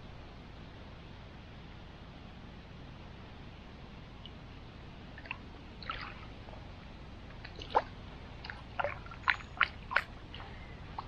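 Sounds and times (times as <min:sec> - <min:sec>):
hands splashing in river water: 0:07.3 - 0:11.0.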